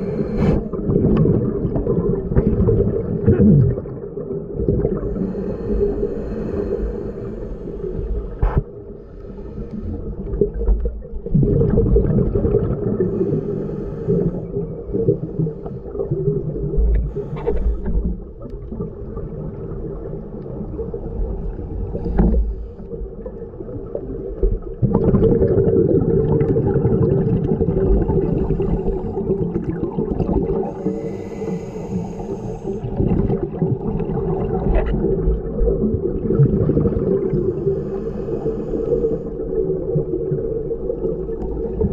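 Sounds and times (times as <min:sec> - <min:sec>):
diver breathing through regulator: 0:00.0 - 0:00.8, 0:05.0 - 0:10.4, 0:13.0 - 0:16.0, 0:17.0 - 0:18.2, 0:21.8 - 0:22.9, 0:28.0 - 0:29.6, 0:30.5 - 0:33.4, 0:37.2 - 0:39.5
bubbles gurgling underwater: 0:00.0 - 0:05.3, 0:10.0 - 0:13.3, 0:14.1 - 0:31.0, 0:32.7 - 0:41.9.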